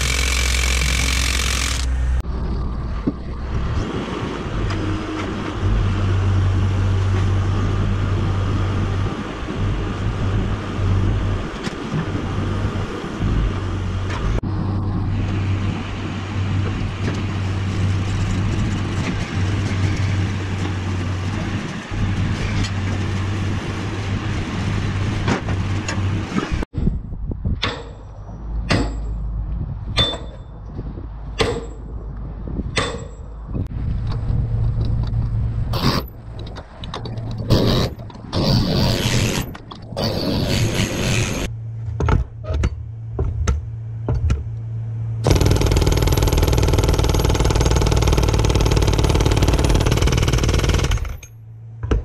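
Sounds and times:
diesel engine running: 0.0s - 11.5s, 40.7s - 51.9s.

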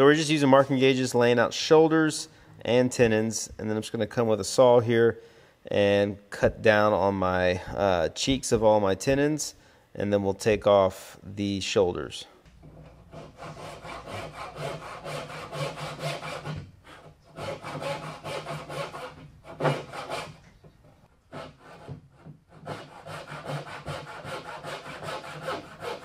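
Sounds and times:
hand saw strokes in wood: 13.1s - 20.4s, 21.3s - 26.0s.

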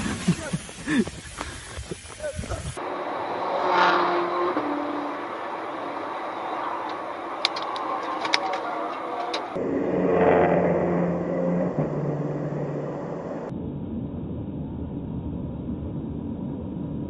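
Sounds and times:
highway traffic road noise: 2.1s - 13.5s.

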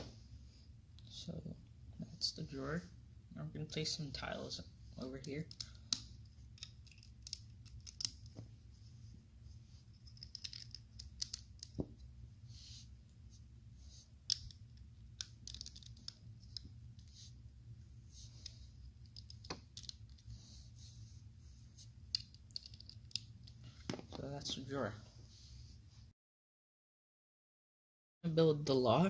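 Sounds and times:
plastic bricks clicking: 5.4s - 8.3s, 10.1s - 11.8s, 14.3s - 16.7s, 19.0s - 20.2s, 22.1s - 23.3s.

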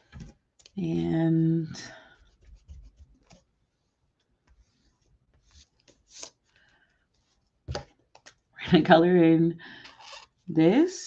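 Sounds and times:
scratching on paper: 2.1s - 3.5s.

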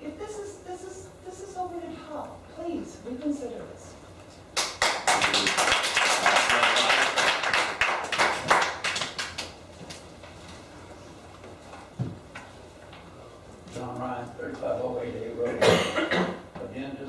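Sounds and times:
audience applauding: 4.6s - 9.6s.

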